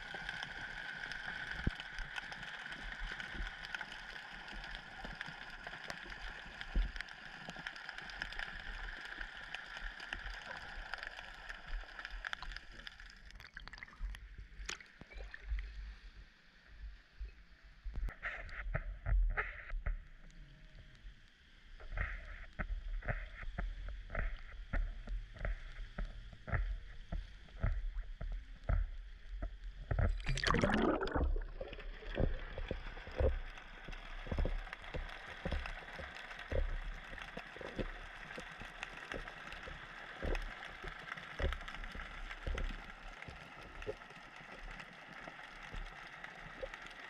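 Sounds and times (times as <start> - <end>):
underwater noise: 0.0 - 47.0
water splashing: 30.0 - 39.2.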